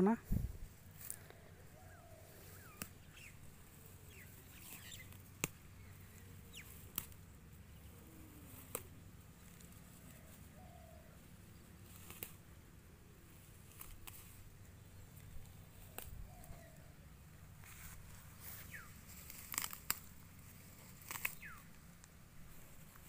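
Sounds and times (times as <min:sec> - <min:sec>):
leaves rustling: 0:00.0 - 0:23.0
stems snapping: 0:02.6 - 0:03.3, 0:04.1 - 0:07.3, 0:08.4 - 0:10.2, 0:11.8 - 0:12.5, 0:13.5 - 0:14.5, 0:15.1 - 0:16.8, 0:18.7 - 0:22.2.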